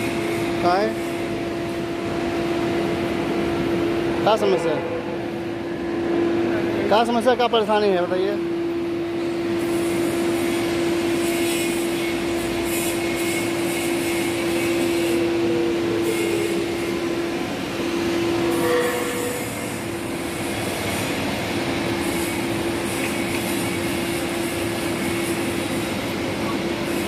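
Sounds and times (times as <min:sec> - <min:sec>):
machine hum: 0:00.0 - 0:27.0
short higher tone: 0:18.2 - 0:19.7.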